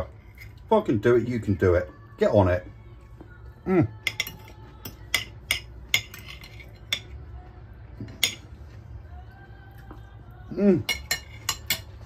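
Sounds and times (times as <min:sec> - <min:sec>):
knife and fork clinking on plate: 0:04.0 - 0:07.2, 0:10.8 - 0:12.0.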